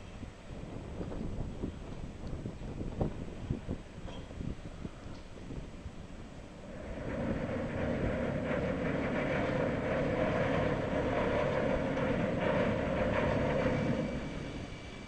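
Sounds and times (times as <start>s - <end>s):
yacht engines humming: 5.6s - 15.0s.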